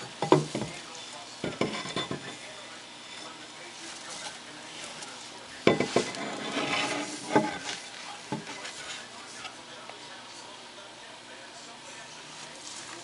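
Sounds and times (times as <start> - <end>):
rustling and chewing: 11.9 - 13.0.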